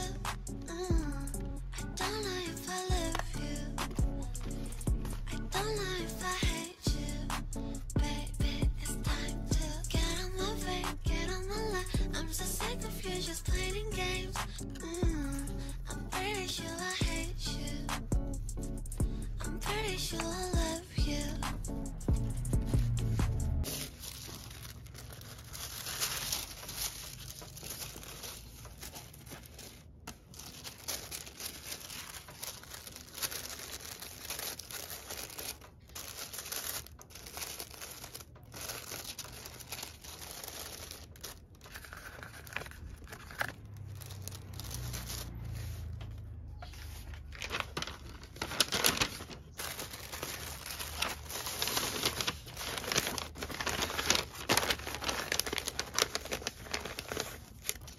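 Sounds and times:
paper rustling and crinkling: 2.1s - 3.6s, 23.6s - 57.9s.

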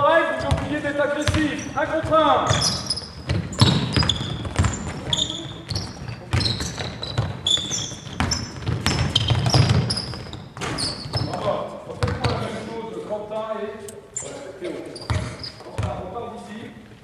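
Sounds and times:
sneakers squeaking: 0.3s - 12.7s, 13.8s - 16.1s
basketball bouncing on wooden floor: 0.4s - 12.4s, 15.1s - 16.0s.

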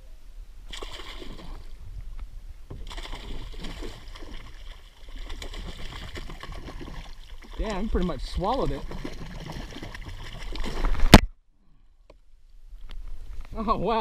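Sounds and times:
fish thrashing and splashing: 0.7s - 1.7s, 2.8s - 11.2s.

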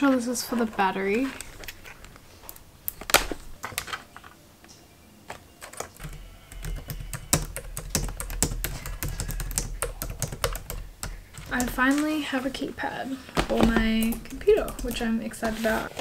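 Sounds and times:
rapid keyboard typing: 5.6s - 12.2s, 13.6s - 15.5s.

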